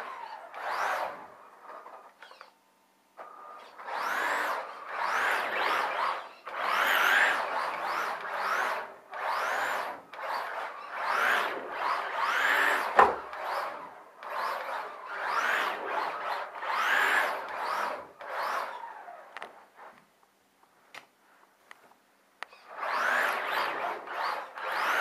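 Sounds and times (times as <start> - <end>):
rc car motor whining: 0.0 - 2.6, 3.2 - 20.0, 22.4 - 25.0
sharp knock: 13.0 - 13.2.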